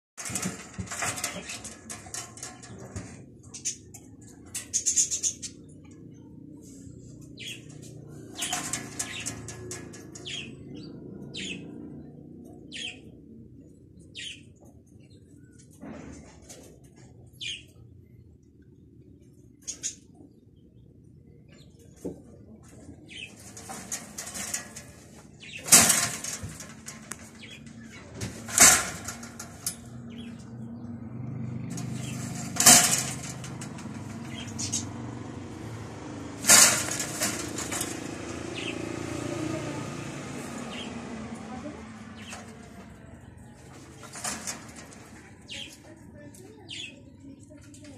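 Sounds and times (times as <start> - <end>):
knocks and rattles on wire cage: 0.2 - 5.6, 7.2 - 12.0, 22.9 - 45.8
birds chirping: 0.2 - 47.9
rustling: 36.3 - 39.0.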